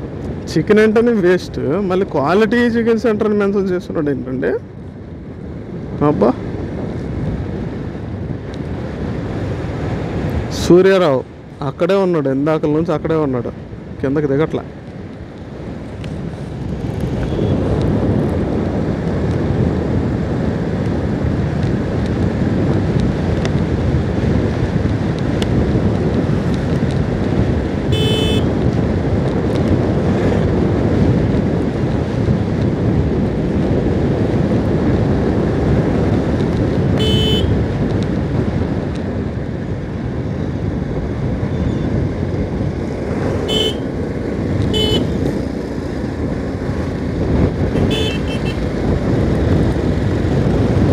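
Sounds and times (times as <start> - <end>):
wind rushing: 15.2 - 50.9
motorcycle engine: 26.2 - 28.7, 36.2 - 37.8, 42.7 - 50.9
horn toots: 27.9 - 28.5, 37.0 - 37.6, 43.4 - 43.9, 44.7 - 45.2, 47.7 - 48.6.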